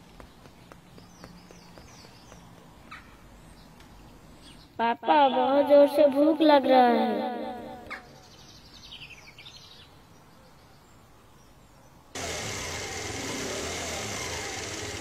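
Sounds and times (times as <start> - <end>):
motor scooter engine running: 12.2 - 15.0.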